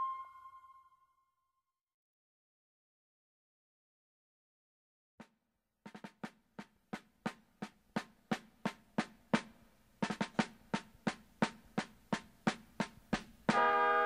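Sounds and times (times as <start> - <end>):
drum beat: 5.9 - 13.8.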